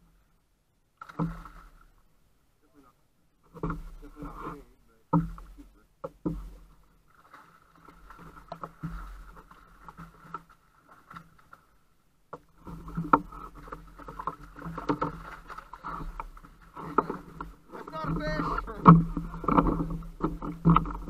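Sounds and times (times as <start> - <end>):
net and gear knocking on kayak: 5.2 - 6.8, 12.3 - 21.0.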